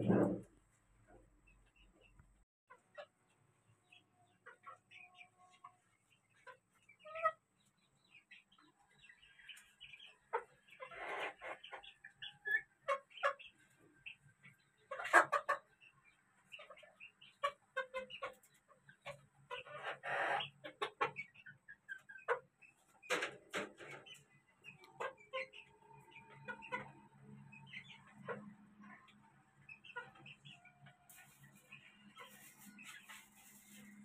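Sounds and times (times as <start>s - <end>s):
chickens clucking: 0.0s - 0.5s, 1.1s - 34.0s
chickens calling loudly: 8.1s - 34.0s.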